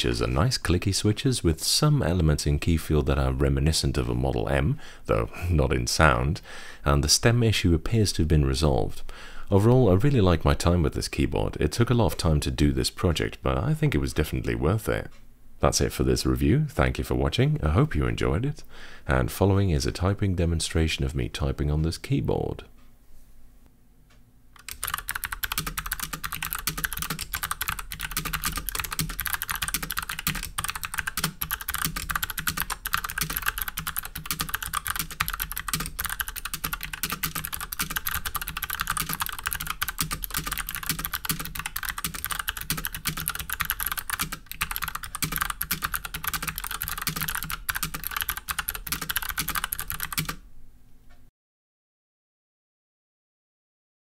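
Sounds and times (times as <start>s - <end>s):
fast clicky keyboard typing: 24.6s - 50.4s.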